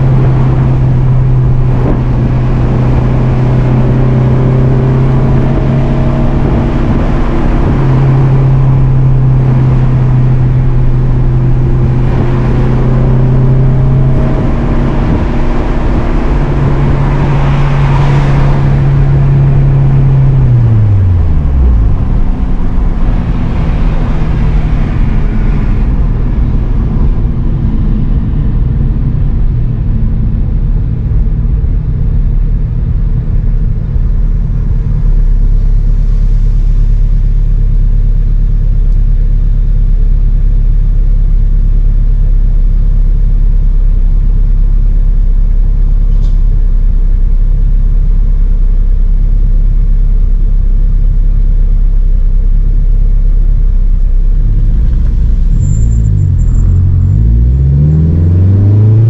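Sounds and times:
car engine revs falling: 0:00.0 - 0:30.0, 0:54.4 - 0:59.0.

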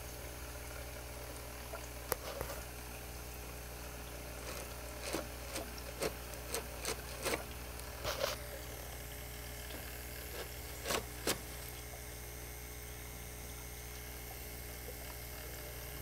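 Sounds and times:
small motor humming: 0:00.0 - 0:16.0.

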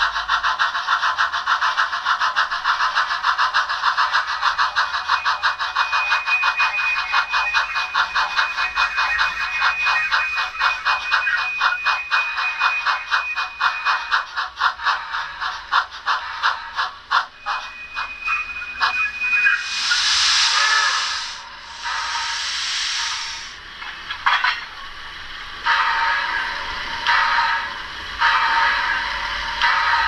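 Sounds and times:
digital steam locomotive chuffs: 0:00.0 - 0:30.0
thin steady high tone: 0:17.4 - 0:23.5.

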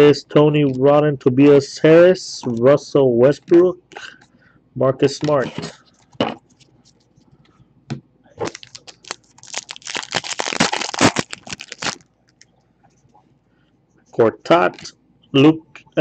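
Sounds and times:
foil pack crinkling: 0:08.4 - 0:12.5.

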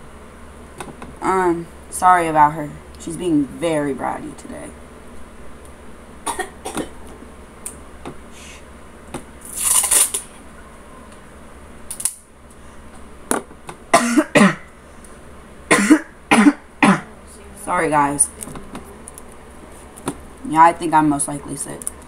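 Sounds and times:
person coughing: 0:06.3 - 0:07.0, 0:13.9 - 0:14.7, 0:15.7 - 0:17.2.

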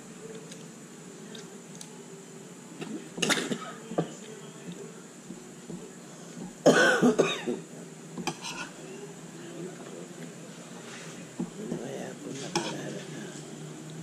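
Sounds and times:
person coughing: 0:06.7 - 0:07.6
cutlery scraping on plates: 0:08.2 - 0:08.8, 0:10.8 - 0:13.4.

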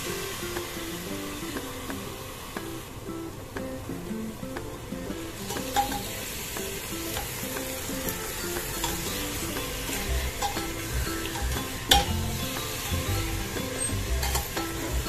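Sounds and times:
meat sizzling in oil: 0:00.0 - 0:02.9, 0:05.2 - 0:15.0
metal spoon scraping pot: 0:13.7 - 0:15.0.

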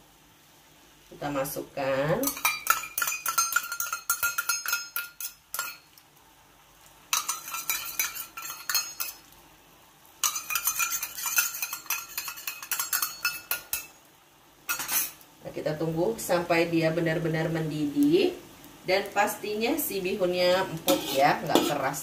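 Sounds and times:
metal spatula scraping a wok: 0:02.2 - 0:05.8, 0:07.1 - 0:09.2, 0:10.2 - 0:14.0, 0:14.7 - 0:15.2, 0:20.6 - 0:22.0.

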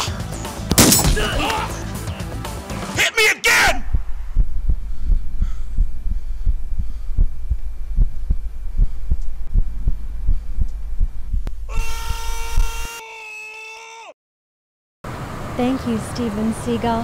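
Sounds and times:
man screaming: 0:01.1 - 0:01.8, 0:03.0 - 0:03.8, 0:11.7 - 0:14.2
low rumble: 0:03.8 - 0:11.7
rapid dull thumps: 0:03.9 - 0:11.7.

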